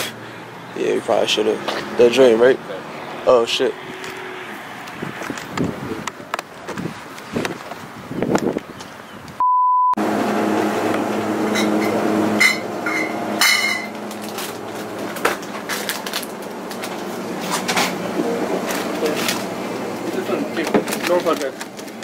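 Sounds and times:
high-pitched bleep tone: 9.4 - 10.0
electrical hum of drink coolers: 10.0 - 22.0.

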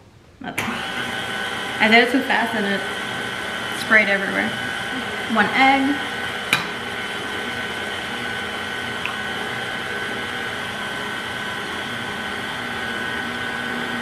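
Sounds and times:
stand mixer motor whirring: 0.6 - 14.0.

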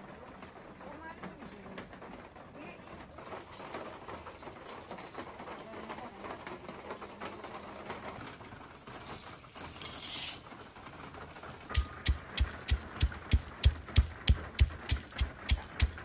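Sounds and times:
cardamom pods poured into mortar: 8.9 - 10.7
pestle pounding in mortar: 11.7 - 16.0.

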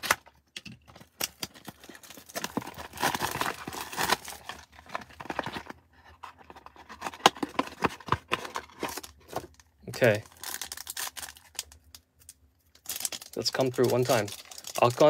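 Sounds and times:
plastic and cardboard rustling: 0.0 - 11.6, 12.8 - 15.0
plastic wrap crackling: 12.8 - 15.0.

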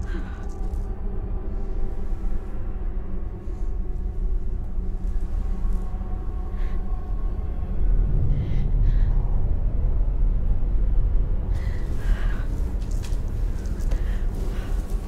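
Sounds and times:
low rumbling drone: 0.0 - 15.0
woman gasping breaths: 11.6 - 15.0.

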